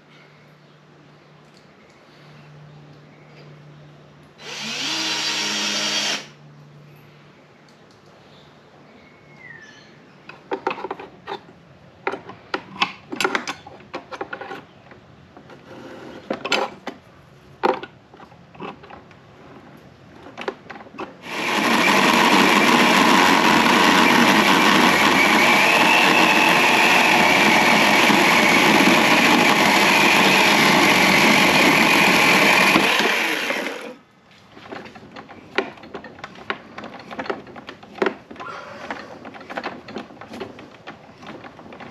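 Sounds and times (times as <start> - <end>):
chainsaw cutting log: 4.4 - 6.3, 21.2 - 34.0
knocks and clatter of handling: 10.3 - 17.0, 17.6 - 21.2, 34.4 - 41.9.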